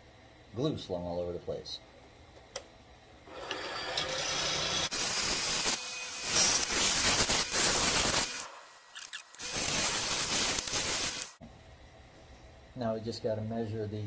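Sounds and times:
lathe tool cutting wood: 0:03.3 - 0:11.4.

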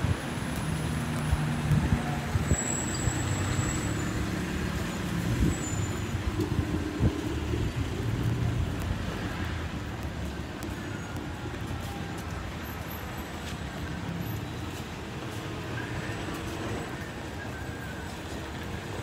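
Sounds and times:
vehicle engines humming: 0:00.0 - 0:19.0.

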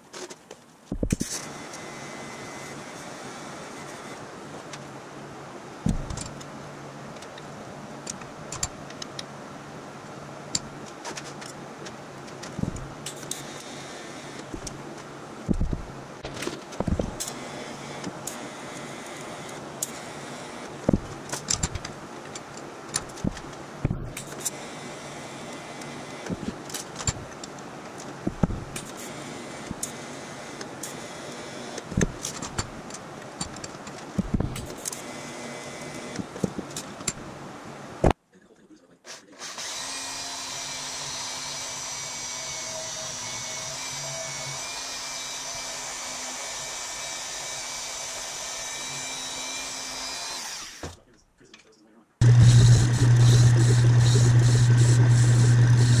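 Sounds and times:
welding clicks: 0:13.0 - 0:13.7, 0:20.9 - 0:24.6, 0:28.4 - 0:29.1, 0:31.9 - 0:35.0
band saw cutting steel tube: 0:39.2 - 0:50.8, 0:52.2 - 0:56.0
welding arc hiss: 0:52.3 - 0:56.0.

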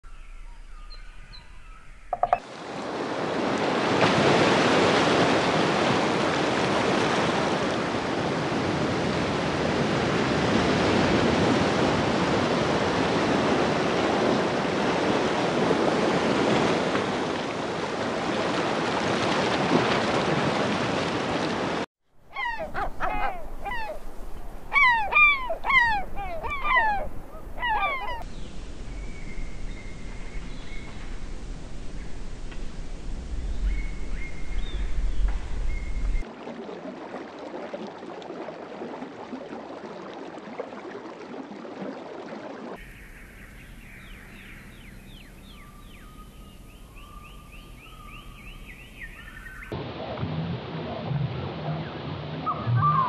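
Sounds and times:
bird calling: 0:00.1 - 0:02.4, 0:22.2 - 0:28.3, 0:42.8 - 0:49.7, 0:52.4 - 0:53.0
ocean waves and surf: 0:02.1 - 0:28.9, 0:29.7 - 0:45.6, 0:47.0 - 0:53.0.

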